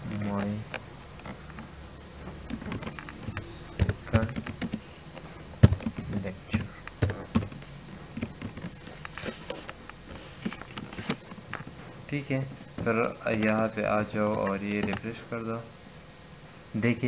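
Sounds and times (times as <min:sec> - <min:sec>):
typing on computer keyboard: 0:02.4 - 0:04.8.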